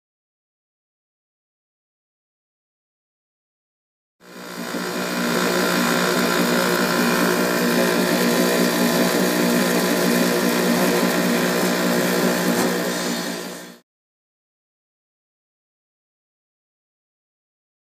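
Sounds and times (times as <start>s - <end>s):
machine rotor humming: 4.2s - 13.8s
scrap pouring hiss: 12.6s - 13.5s.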